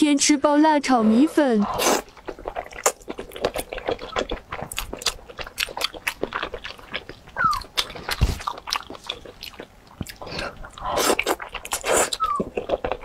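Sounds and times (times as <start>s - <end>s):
wet chewing and smacking: 0.9s - 13.0s.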